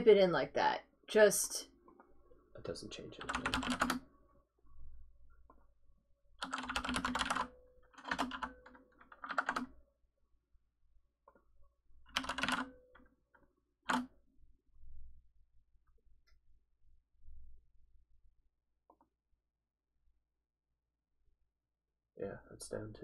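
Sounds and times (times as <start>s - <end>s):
computer keyboard typing: 3.2s - 4.1s, 6.4s - 9.8s, 12.1s - 13.1s, 13.9s - 14.1s.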